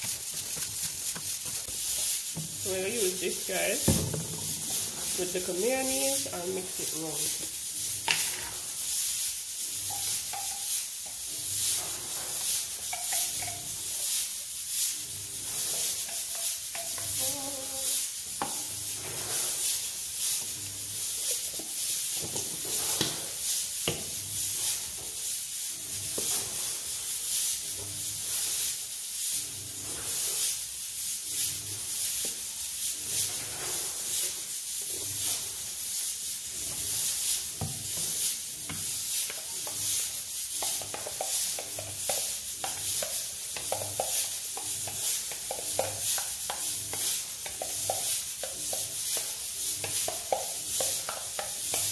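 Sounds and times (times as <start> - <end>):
spoon scraping plastic bowl: 0.0 - 14.3, 15.4 - 24.8, 36.7 - 51.9
steady high hiss: 0.0 - 51.9.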